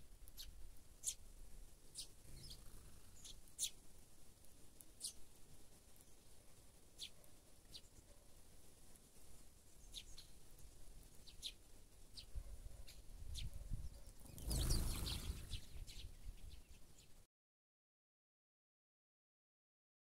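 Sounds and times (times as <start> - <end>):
sparrows chirping: 0.3 - 1.3, 1.9 - 3.8, 5.0 - 5.4, 6.0 - 8.4, 9.7 - 17.2.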